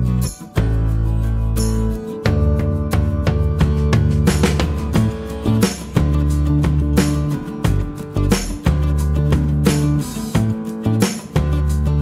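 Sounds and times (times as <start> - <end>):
repeated plucked notes: 0.0 - 12.0.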